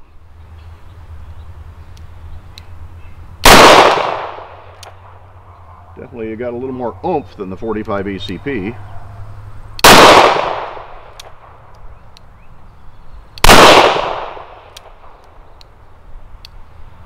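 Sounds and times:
revolver gunshots: 3.4 - 5.2, 9.8 - 11.6, 13.4 - 15.1.

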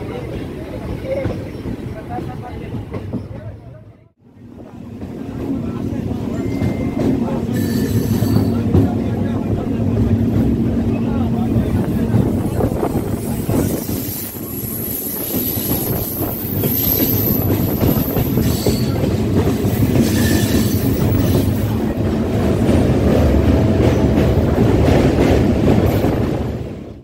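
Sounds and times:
train rumbling and rattling: 0.0 - 27.0
high squeal: 6.3 - 8.6, 20.0 - 21.6.

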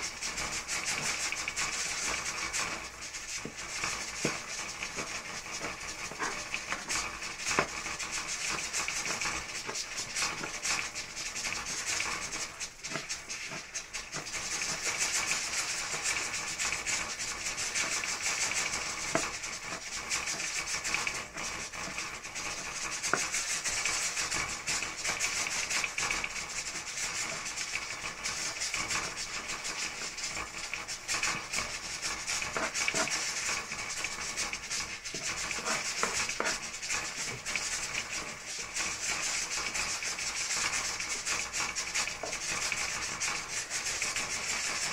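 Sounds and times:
knife chopping herbs on board: 4.2 - 7.8, 32.5 - 33.1, 35.1 - 36.6.

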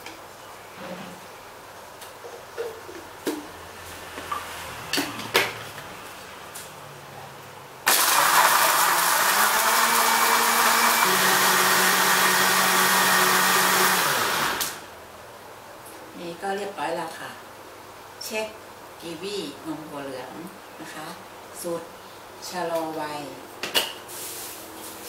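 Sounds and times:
electric blender running: 7.9 - 14.8.

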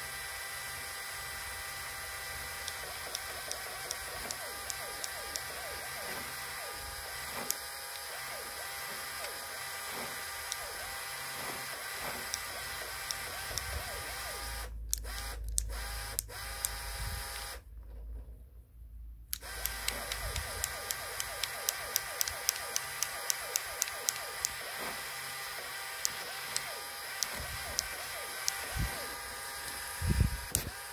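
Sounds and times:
gear whine: 0.0 - 17.6, 19.3 - 30.9
small electric motor whirring: 0.0 - 17.7, 19.3 - 30.9
scattered clicks: 2.5 - 16.8, 19.3 - 29.1.

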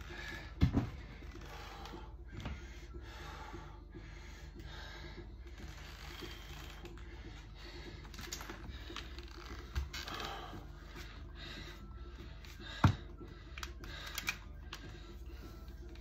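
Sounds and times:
steady low hum: 0.0 - 16.0
leather pads creaking and clicking: 1.2 - 2.4, 5.5 - 7.4, 8.0 - 10.6.

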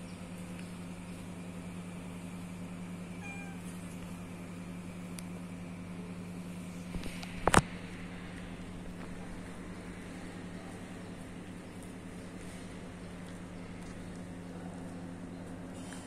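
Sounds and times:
steady low hum: 0.0 - 16.0
faint short pitched call: 3.1 - 3.8.

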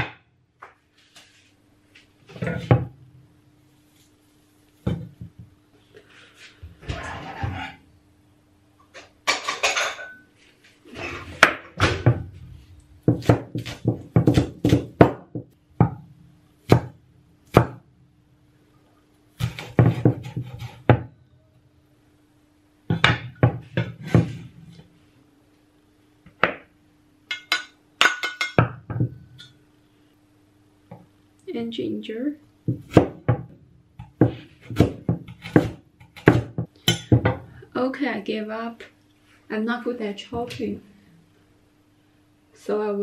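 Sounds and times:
cleaver chopping on wooden board: 13.1 - 16.0, 16.7 - 17.8.

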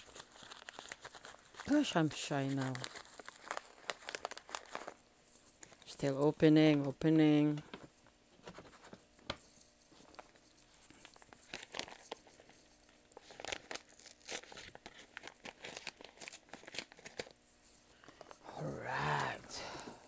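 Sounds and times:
paper envelope tearing: 0.0 - 5.0, 11.1 - 17.4.

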